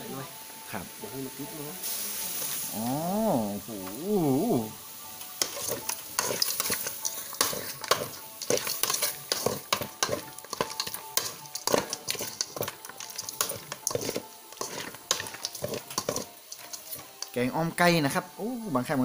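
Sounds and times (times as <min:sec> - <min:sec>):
chicken sizzling: 0:00.0 - 0:19.0
metal ladle scraping pot: 0:05.4 - 0:17.3.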